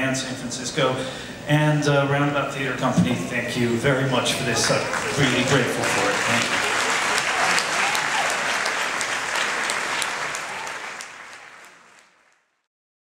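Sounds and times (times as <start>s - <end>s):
audience applauding: 4.5s - 12.6s.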